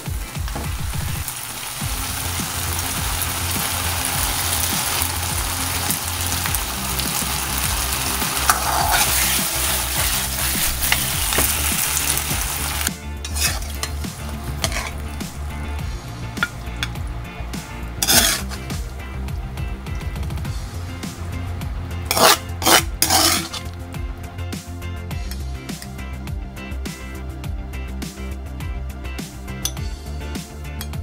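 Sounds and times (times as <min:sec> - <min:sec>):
food sizzling in a wok: 0:00.0 - 0:26.0
metal ladle scraping a wok: 0:08.1 - 0:15.7, 0:18.0 - 0:18.8, 0:22.1 - 0:23.8.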